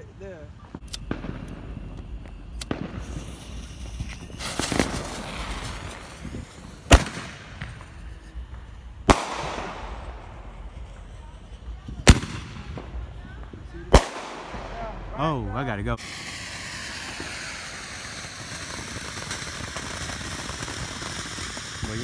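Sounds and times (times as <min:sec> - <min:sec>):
fireworks hissing: 0:00.0 - 0:22.0
firework bangs: 0:00.6 - 0:22.0.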